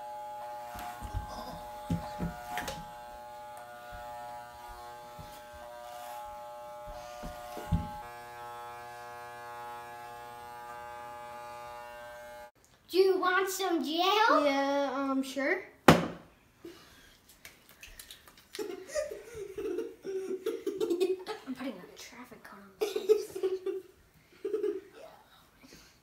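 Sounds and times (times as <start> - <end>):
electric hair clippers buzzing: 0.0 - 12.6
clippers knocking when handled: 1.1 - 2.8.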